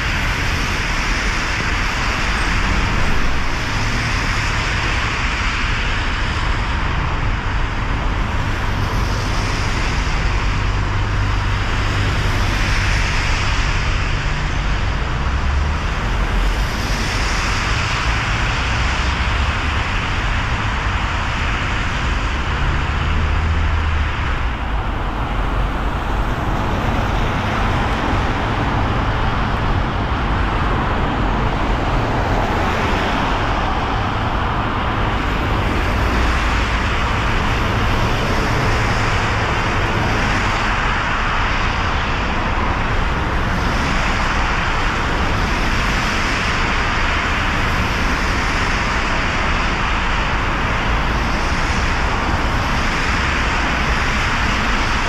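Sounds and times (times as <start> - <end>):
tyres hissing on wet road: 0.0 - 55.0
low engine rumble: 2.0 - 45.4.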